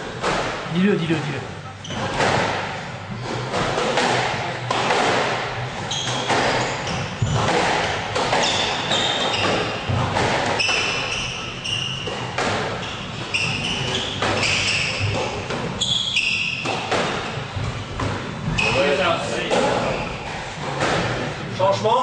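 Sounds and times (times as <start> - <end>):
squash ball hits: 1.9 - 21.5
shoes squeaking on wooden floor: 5.6 - 21.3.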